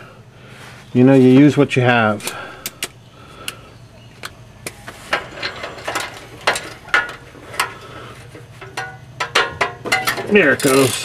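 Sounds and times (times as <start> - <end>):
ratchet wrench clicking: 10.6 - 11.0.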